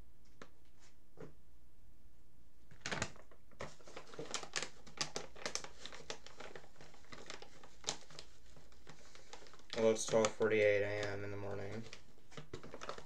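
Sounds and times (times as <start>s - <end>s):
crinkling rustles: 2.7s - 13.0s.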